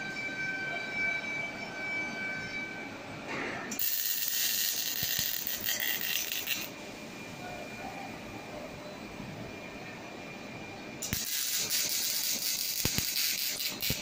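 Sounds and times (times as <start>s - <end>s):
steady high whine: 0.0s - 14.0s
welding arc hiss: 3.8s - 6.7s, 11.0s - 14.0s.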